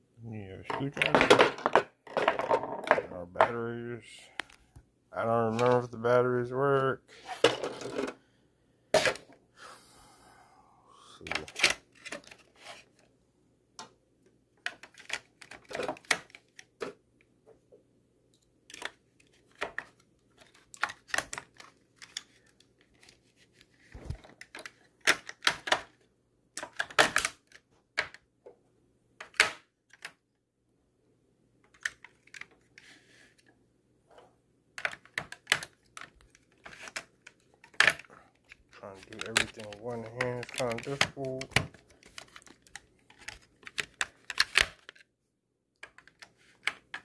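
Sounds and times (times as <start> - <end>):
batteries clacking into plastic tray: 39.0 - 44.9.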